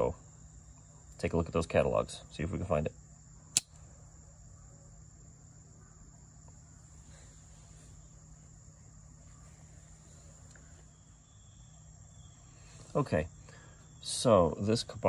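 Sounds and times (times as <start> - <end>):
faint high-pitched whine: 0.0 - 15.0
pocketknife metallic click: 3.5 - 3.8.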